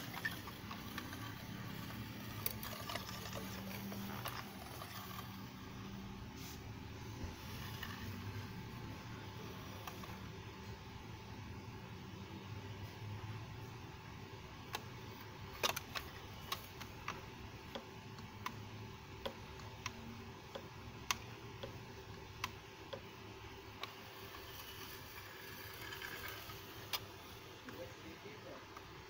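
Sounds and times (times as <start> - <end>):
plastic toys clicking and tapping: 0.0 - 5.5, 15.5 - 23.1, 23.8 - 27.1
steady low hum: 0.0 - 29.0.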